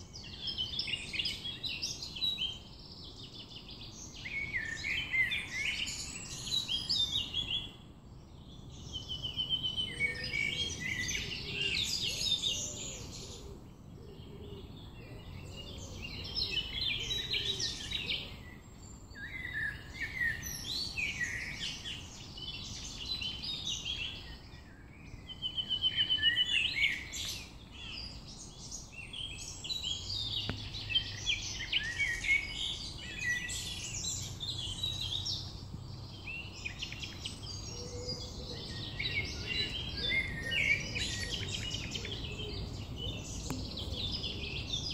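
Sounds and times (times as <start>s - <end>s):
songbirds singing: 0.0s - 44.9s.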